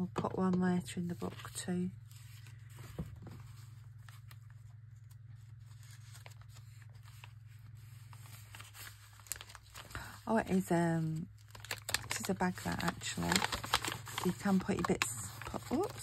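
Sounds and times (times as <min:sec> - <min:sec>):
low electrical hum: 0:00.0 - 0:16.0
paper rustling: 0:01.1 - 0:16.0.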